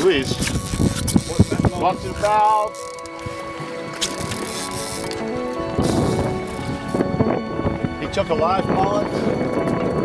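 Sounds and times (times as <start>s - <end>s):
background music with held notes: 0.0s - 10.0s
water noise: 0.0s - 10.0s
wind hiss: 0.1s - 8.0s.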